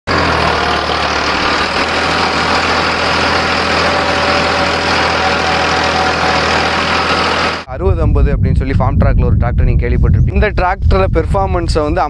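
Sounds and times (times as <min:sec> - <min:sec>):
tractor diesel engine under load: 0:00.0 - 0:08.0.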